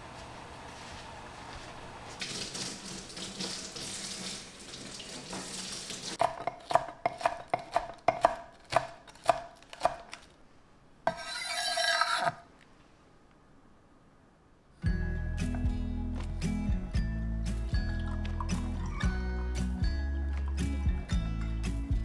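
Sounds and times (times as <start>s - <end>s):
knife chopping on wooden board: 6.2s - 10.1s
knife scraping board: 11.1s - 12.4s.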